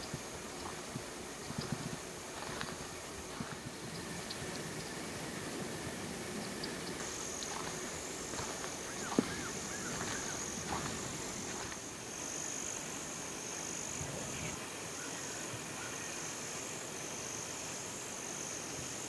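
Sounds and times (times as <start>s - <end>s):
insects trilling: 0.0s - 19.0s.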